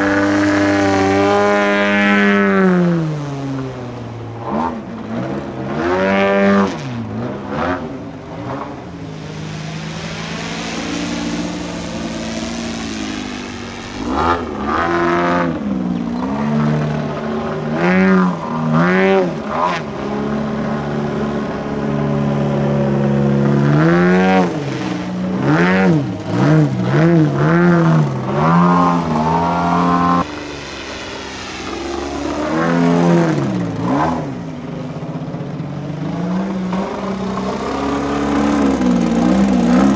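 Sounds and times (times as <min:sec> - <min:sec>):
model plane engine swooping: 0:06.1 - 0:20.0, 0:23.2 - 0:35.4.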